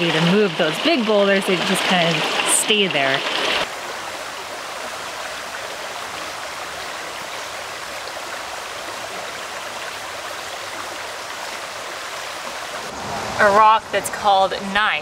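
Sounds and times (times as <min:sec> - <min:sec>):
stream water running over rocks: 0:00.0 - 0:15.0.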